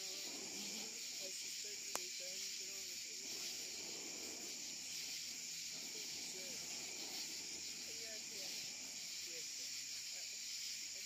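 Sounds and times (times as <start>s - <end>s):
crickets chirring: 0.0s - 11.0s
murmur of voices: 0.0s - 11.0s.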